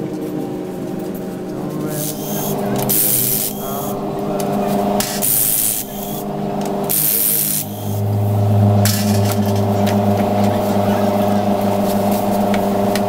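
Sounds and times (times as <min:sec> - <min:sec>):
steady low hum: 0:00.4 - 0:13.0
impact wrench hissing bursts: 0:01.9 - 0:04.0, 0:05.0 - 0:06.3, 0:06.9 - 0:08.0.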